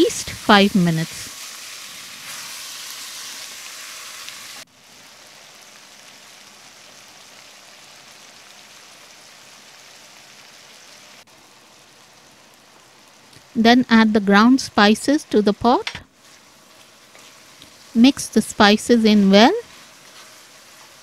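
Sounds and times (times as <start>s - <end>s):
meat sizzling in a pot: 0.0s - 13.6s, 14.3s - 21.0s.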